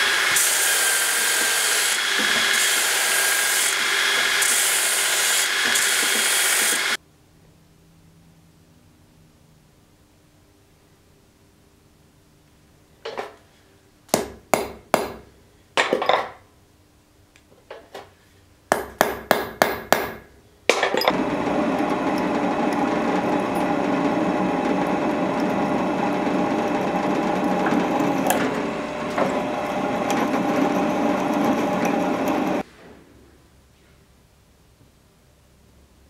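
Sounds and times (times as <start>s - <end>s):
drill press drilling: 0.0s - 7.0s, 21.1s - 32.6s
hammer tapping centre punch: 14.1s - 15.2s, 18.7s - 20.2s.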